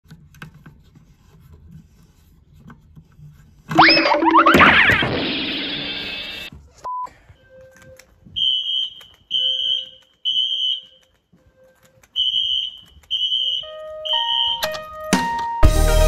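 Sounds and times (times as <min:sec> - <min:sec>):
fire alarm horn blasts: 0:08.4 - 0:11.0, 0:12.2 - 0:14.8.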